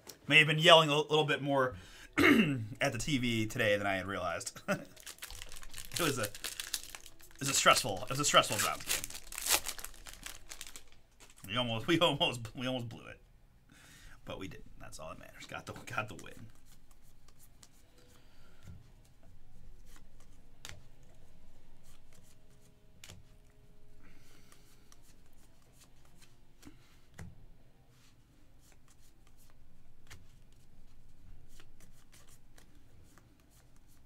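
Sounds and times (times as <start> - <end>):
cards clicking and rustling: 4.8 - 11.6, 19.7 - 23.5, 28.6 - 34.0.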